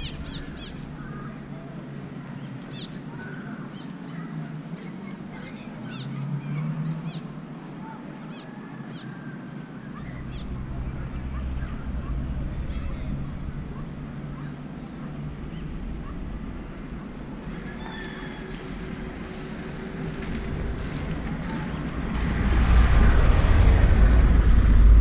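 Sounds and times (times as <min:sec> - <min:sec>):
birds chirping: 0:00.0 - 0:22.2
low rumble: 0:18.7 - 0:25.0.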